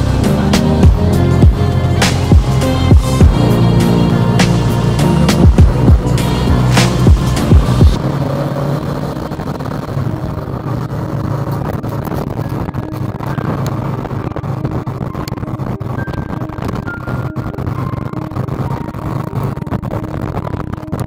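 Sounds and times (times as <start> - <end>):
motorcycle engine running: 0.0 - 21.0
road and wind noise: 0.0 - 21.0
loud low thumps: 0.8 - 3.5, 5.3 - 8.1.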